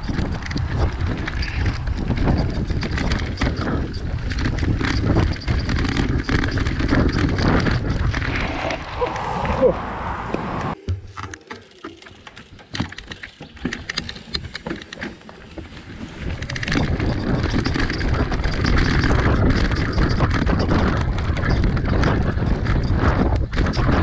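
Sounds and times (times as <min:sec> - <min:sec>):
bike clicking and rattling: 0:00.0 - 0:09.4, 0:10.6 - 0:24.0
wind rushing on microphone: 0:00.0 - 0:10.8, 0:16.1 - 0:24.0
tyres rolling on dirt: 0:00.0 - 0:24.0.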